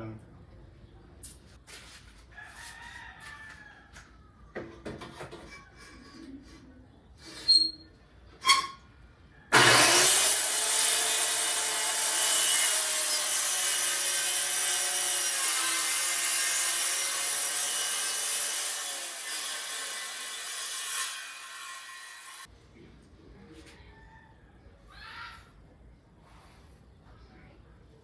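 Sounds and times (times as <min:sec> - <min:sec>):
circular saw cutting plywood: 0:09.5 - 0:22.5.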